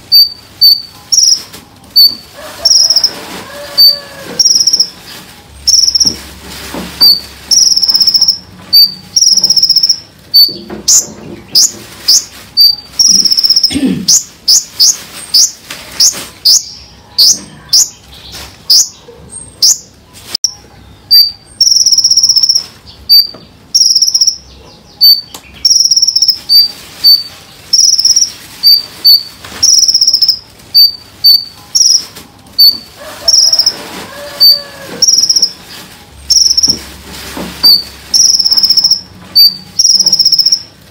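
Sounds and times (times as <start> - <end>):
songbird singing: 0.0 - 3.1, 7.0 - 33.7.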